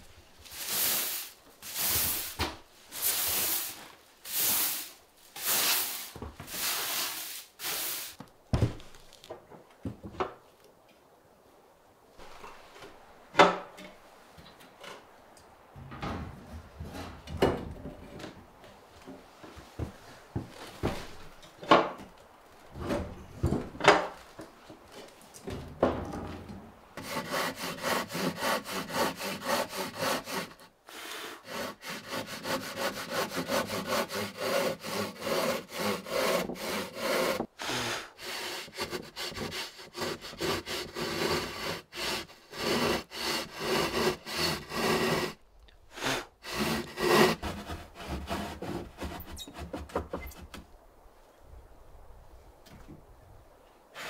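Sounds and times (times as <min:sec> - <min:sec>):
hand saw cutting board: 0:27.0 - 0:45.4, 0:46.0 - 0:50.6.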